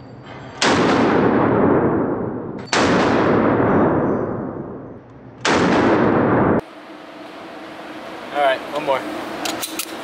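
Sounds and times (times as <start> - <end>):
pistol shots with echo: 0.6 - 4.0, 5.4 - 6.6.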